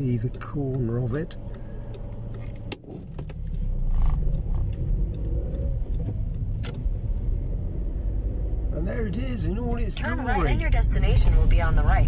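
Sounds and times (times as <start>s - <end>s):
light clicks: 0.0s - 3.4s
car road and engine rumble: 0.0s - 12.0s.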